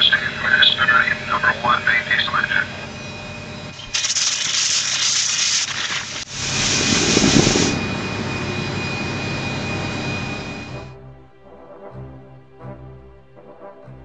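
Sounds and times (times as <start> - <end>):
engine high whine: 0.0 - 11.0
air start hiss: 3.7 - 10.9
diesel engine starting and running: 6.3 - 11.0.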